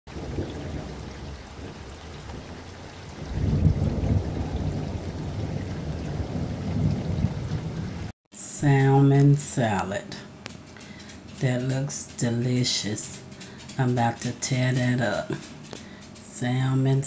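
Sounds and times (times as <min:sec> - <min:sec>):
deep rumble: 0:00.1 - 0:08.1
rushing water: 0:00.1 - 0:08.1.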